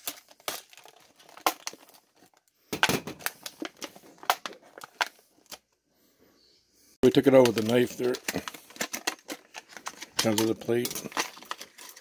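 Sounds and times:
plastic package crackling: 0:00.0 - 0:02.6, 0:07.1 - 0:12.0.

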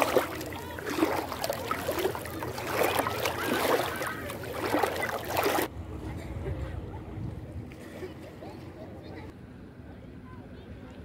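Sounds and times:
sea water lapping and splashing: 0:00.0 - 0:05.7.

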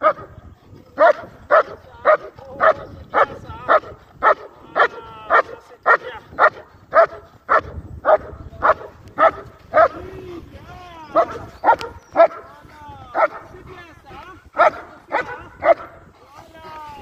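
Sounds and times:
dog barking: 0:00.0 - 0:00.3, 0:01.0 - 0:10.0, 0:11.1 - 0:12.4, 0:13.2 - 0:13.5, 0:14.6 - 0:16.0.

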